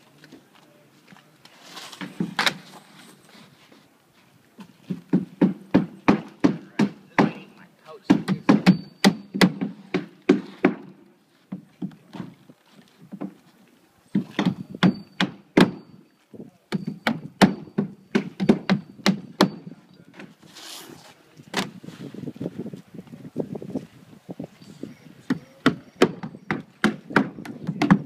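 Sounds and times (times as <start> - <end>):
short rustle: 1.2 - 4.9, 20.3 - 23.0
hammer driving nails into shingles: 4.9 - 7.4, 8.1 - 11.0, 16.7 - 20.3, 25.3 - 28.0.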